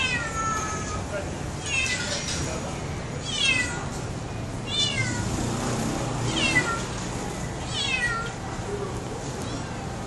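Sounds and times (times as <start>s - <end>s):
cat meowing: 0.0s - 1.0s, 1.6s - 2.2s, 3.2s - 3.9s, 4.7s - 5.3s, 6.3s - 7.0s, 7.7s - 8.4s.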